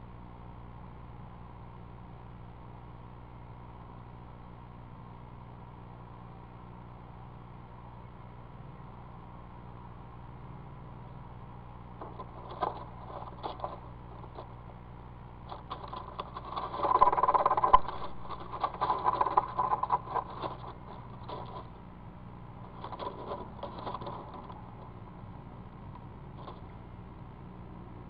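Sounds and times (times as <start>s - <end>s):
steady low hum: 0.0s - 28.0s
scratchy rustling of leaves: 11.9s - 26.8s
owl scratching in nest box: 12.0s - 21.9s, 22.5s - 25.3s.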